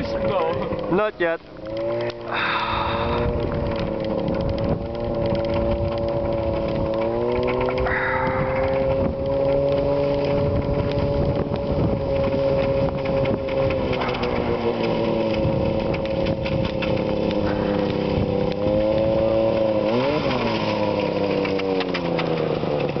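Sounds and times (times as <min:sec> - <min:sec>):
snowmobile engine running: 0:00.0 - 0:23.0.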